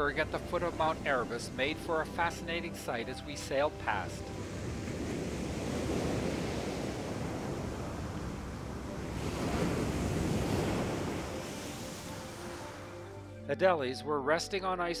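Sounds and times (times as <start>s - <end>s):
waves breaking and washing: 0.0s - 13.4s
wind gusting on microphone: 4.2s - 12.2s.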